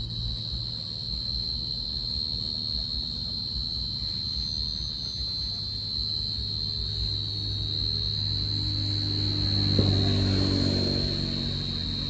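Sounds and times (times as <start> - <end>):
crickets trilling: 0.0 - 12.0
low hum: 0.0 - 12.0.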